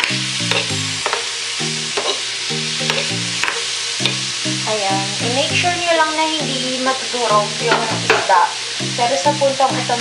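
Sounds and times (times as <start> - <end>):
fish and onion sizzling in a pan: 0.0 - 10.0
metal spoon scraping a pan: 0.4 - 1.2, 2.0 - 4.2.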